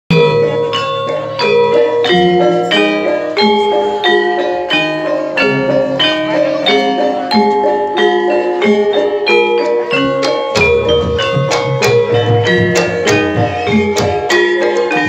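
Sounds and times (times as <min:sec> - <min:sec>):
metallophones ringing notes: 0:00.1 - 0:15.0.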